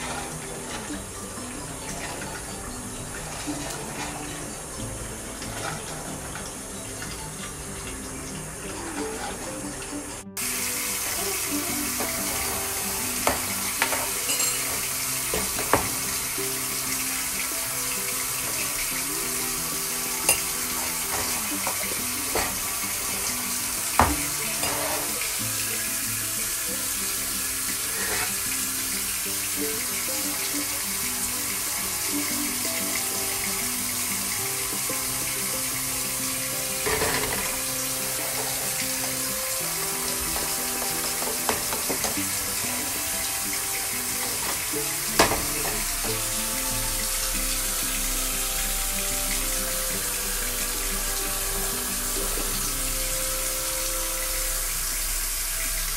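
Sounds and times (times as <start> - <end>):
soft background music: 0.0 - 55.9
steady hiss: 0.0 - 55.9
metal spoon clinking ceramic mug: 13.2 - 15.8.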